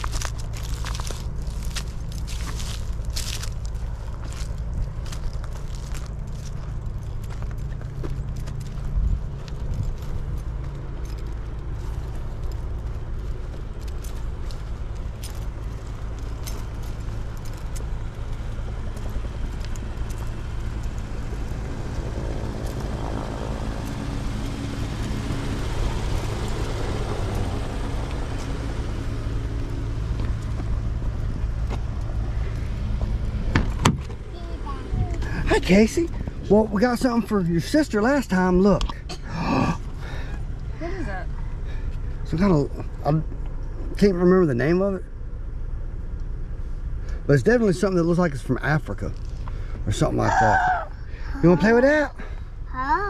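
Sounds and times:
footsteps on grass and pavement: 0:00.0 - 0:38.6
low outdoor rumble: 0:00.0 - 0:53.0
car passing: 0:06.0 - 0:52.7.

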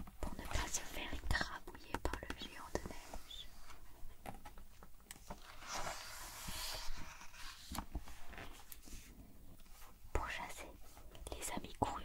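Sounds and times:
light clicks and taps on paper: 0:01.8 - 0:02.9
book page turning: 0:05.1 - 0:09.1.

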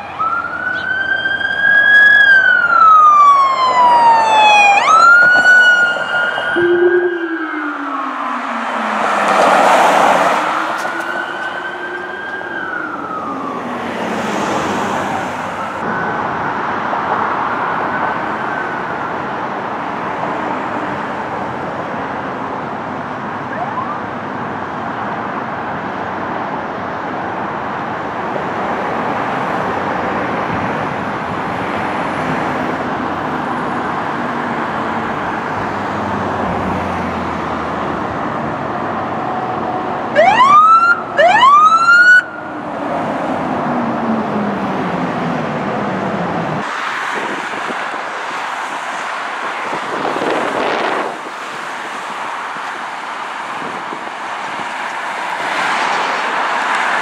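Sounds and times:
police siren wailing: 0:00.0 - 0:21.1, 0:23.4 - 0:24.4, 0:31.0 - 0:57.0
highway traffic noise: 0:00.0 - 0:57.0
vehicle rushing past: 0:01.7 - 0:15.8.

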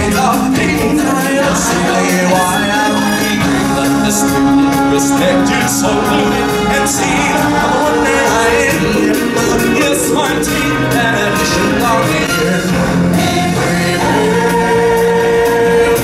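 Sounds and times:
group of voices singing: 0:00.0 - 0:16.0
live stage show music: 0:00.0 - 0:16.0.

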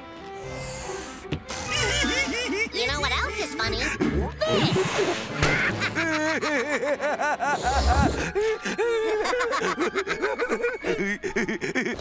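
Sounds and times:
cartoon character laughing: 0:01.7 - 0:08.2.

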